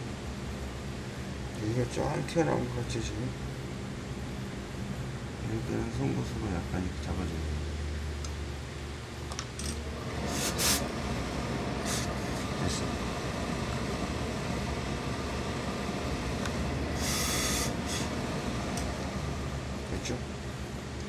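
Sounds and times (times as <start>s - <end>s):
steam iron hissing: 10.0s - 19.5s.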